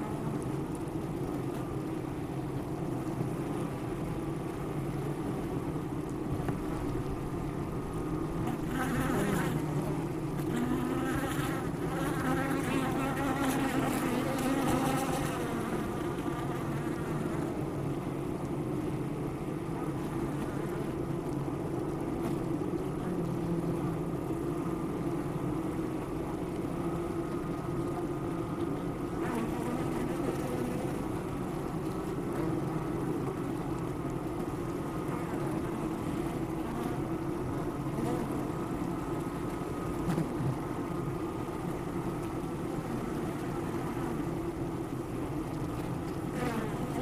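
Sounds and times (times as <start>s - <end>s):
bees humming around a hive: 0.0s - 47.0s
close wavering bee buzz: 8.4s - 17.8s, 29.2s - 31.2s, 35.1s - 38.9s, 46.3s - 47.0s.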